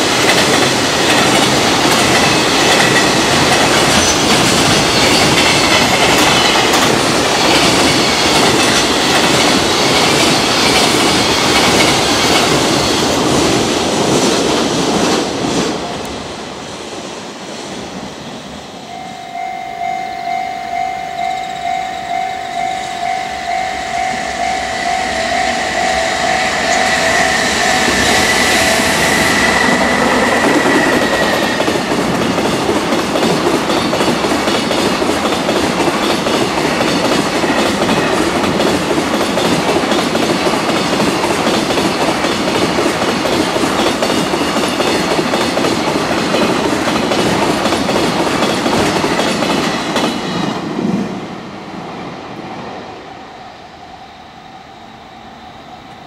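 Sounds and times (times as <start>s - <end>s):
train wheels rushing on rails: 0.0s - 56.0s
level crossing warning bell: 18.8s - 31.3s.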